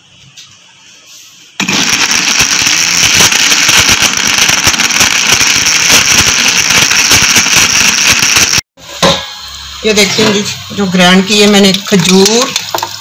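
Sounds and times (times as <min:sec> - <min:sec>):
electric mixer-grinder whining: 0:01.6 - 0:08.6.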